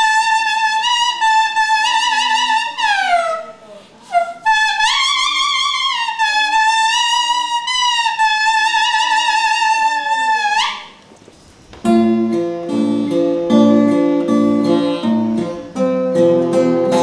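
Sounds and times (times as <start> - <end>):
reedy wind instrument note: 0.0 - 11.0, 12.0 - 15.8
guitar playing picked chords: 11.8 - 17.0.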